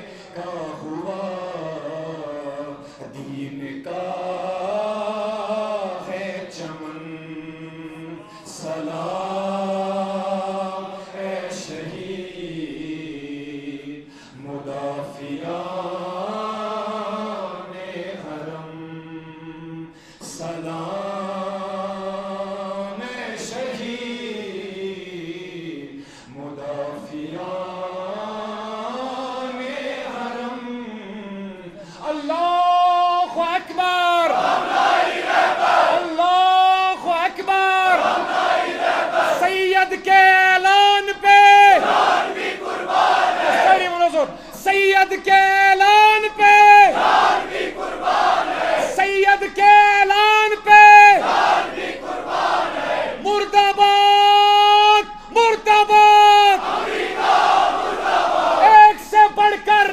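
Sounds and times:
man chanting into microphone: 0.0s - 34.4s, 35.9s - 38.1s, 39.4s - 41.9s, 43.6s - 47.0s, 48.8s - 51.2s, 53.2s - 56.6s, 58.6s - 59.9s
man breathing: 14.0s - 14.4s, 19.9s - 20.2s, 26.0s - 26.3s, 31.8s - 32.0s, 44.3s - 44.6s.

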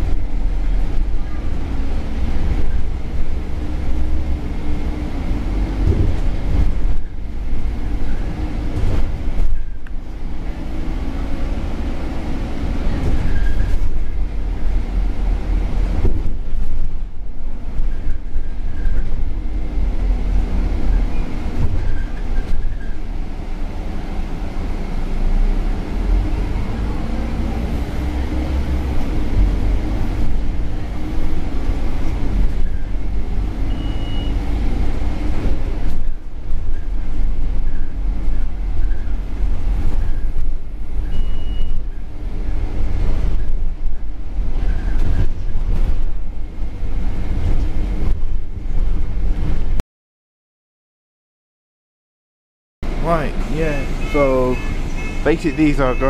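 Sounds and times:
bus engine rumbling: 0.0s - 49.8s, 52.8s - 56.0s
road noise: 0.0s - 49.8s, 52.8s - 56.0s
short high beeps: 33.7s - 34.4s, 53.7s - 56.0s.

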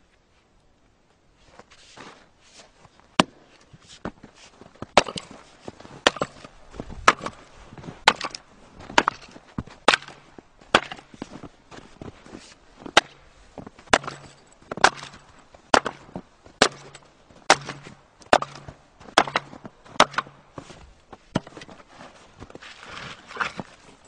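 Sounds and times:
axe chopping log: 3.2s - 3.5s, 4.9s - 5.4s, 6.0s - 7.4s, 8.0s - 11.1s, 12.9s - 13.2s, 13.9s - 20.4s.

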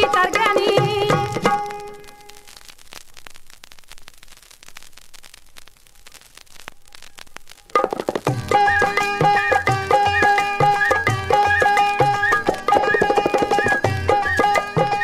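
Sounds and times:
sitar and percussion music: 0.0s - 2.4s, 7.7s - 15.0s
vinyl hiss and crackles: 0.0s - 15.0s.

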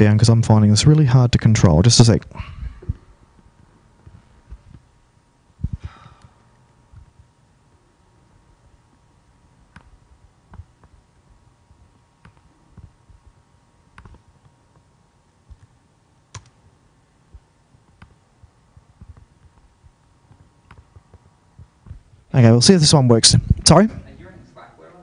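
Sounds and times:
mouse clicking: 9.7s - 11.0s, 12.2s - 13.2s, 13.9s - 14.8s, 15.5s - 16.6s, 17.8s - 18.2s, 18.8s - 22.0s
keyboard keys clicking: 13.9s - 14.2s, 16.3s - 16.6s, 19.0s - 22.0s.

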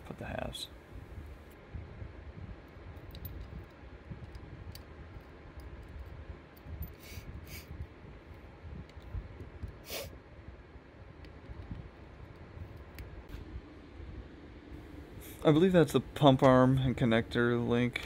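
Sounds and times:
low steady rumble: 0.0s - 18.0s.

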